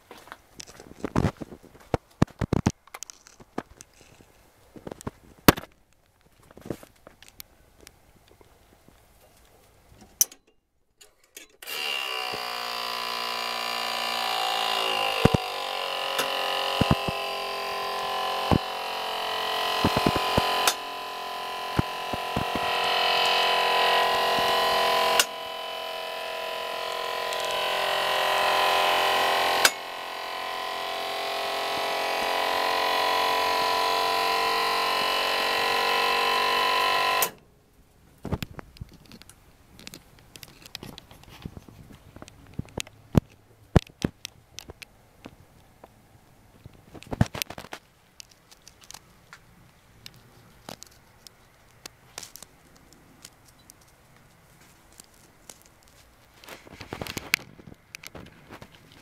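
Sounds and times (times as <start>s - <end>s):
hydraulic pump motor whining hum: 11.6s - 37.4s.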